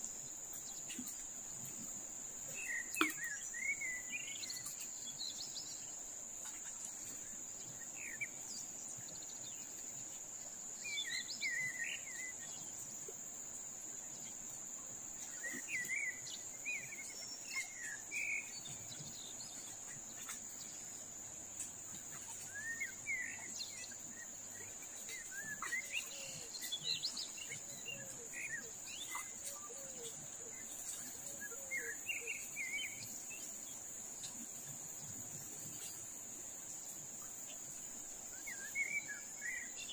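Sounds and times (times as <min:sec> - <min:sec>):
insects droning: 0:00.0 - 0:39.9
river water flowing: 0:00.0 - 0:39.9
birds chirping: 0:15.1 - 0:34.4.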